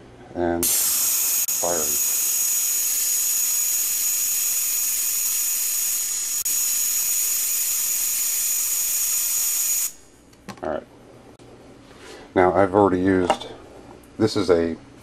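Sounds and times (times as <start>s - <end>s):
high whine: 0.6s - 8.3s
electric spark arcing hiss: 0.6s - 10.0s.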